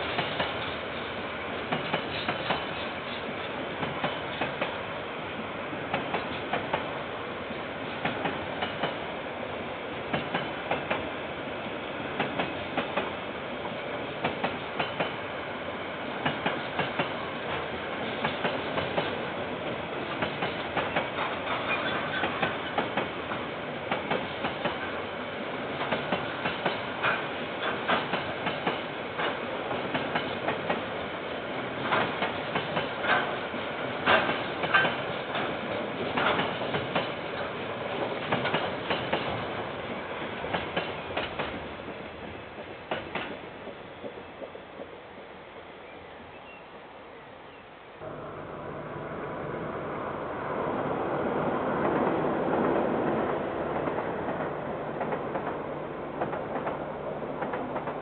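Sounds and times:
continuous train rumble: 0.0s - 58.0s
train wheels clacking over rail joints: 1.6s - 4.8s, 8.0s - 9.0s, 10.1s - 11.1s, 14.2s - 15.2s, 16.2s - 19.2s, 20.0s - 25.0s, 25.7s - 31.0s, 31.7s - 39.6s, 40.4s - 45.0s, 51.8s - 56.8s, 57.4s - 58.0s.

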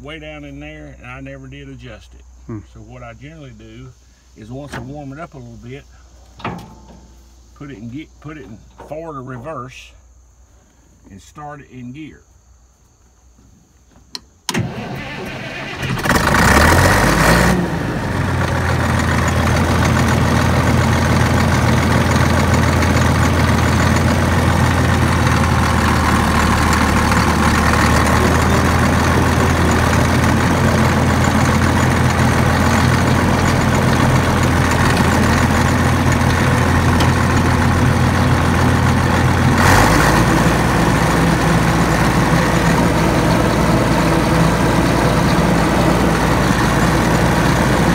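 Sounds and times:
diesel engine cranking: 14.5s - 47.9s
diesel engine idling: 14.5s - 47.9s.

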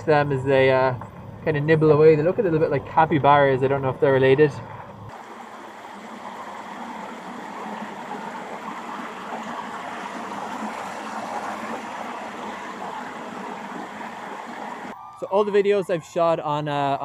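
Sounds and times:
river water rushing over rocks: 5.1s - 15.0s.

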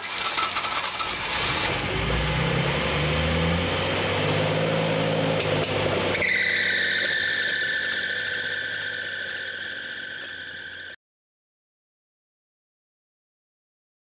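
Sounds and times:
car engine running: 0.0s - 9.1s.

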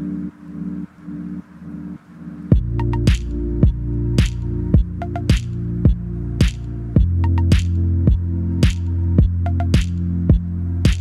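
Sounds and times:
electronic music with deep bass: 0.0s - 11.0s
steady drum beat: 2.5s - 11.0s.

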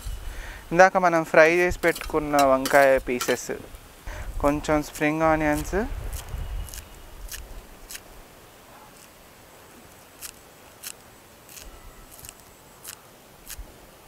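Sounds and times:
scissors snipping: 4.9s - 8.1s, 8.9s - 9.2s, 9.9s - 13.6s.

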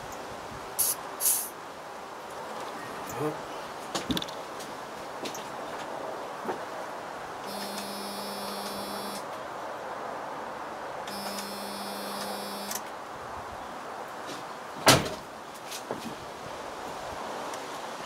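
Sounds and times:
electric fuel pump buzzing: 7.5s - 9.2s, 11.1s - 12.8s.

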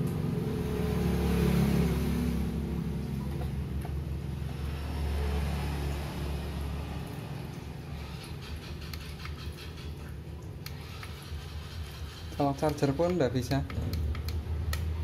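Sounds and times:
low engine-like drone: 0.0s - 15.0s
laptop keyboard clicking: 12.4s - 15.0s.

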